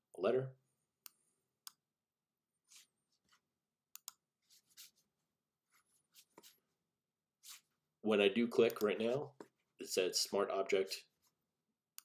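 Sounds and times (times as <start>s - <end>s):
computer mouse clicks: 4.0s - 4.2s.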